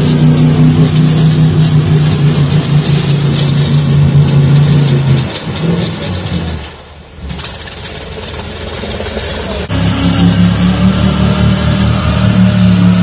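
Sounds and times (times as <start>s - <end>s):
mud spattering: 0.0s - 9.6s
truck engine revving: 0.0s - 13.0s.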